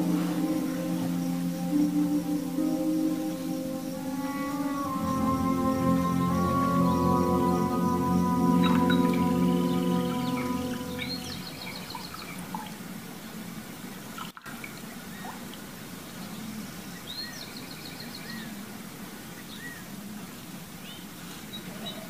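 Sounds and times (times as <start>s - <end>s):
birds chirping and trilling: 0.0s - 12.6s
water trickling: 0.0s - 16.4s.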